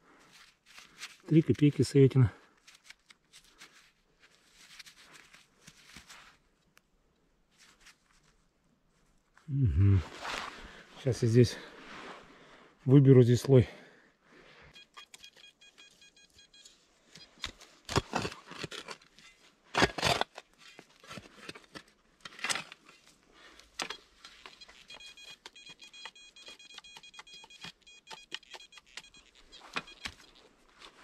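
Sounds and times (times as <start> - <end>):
metal detector beeping: 14.7 - 17.6, 23.8 - 30.5
shovel cutting into soil: 17.4 - 19.0, 19.7 - 20.4.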